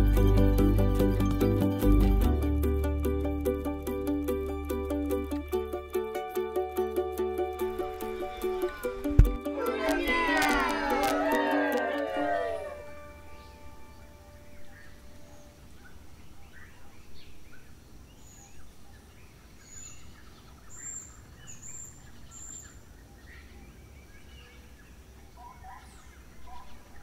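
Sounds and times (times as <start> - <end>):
high whistled notes: 7.1 - 13.9
birds chirping and calling: 12.6 - 27.0.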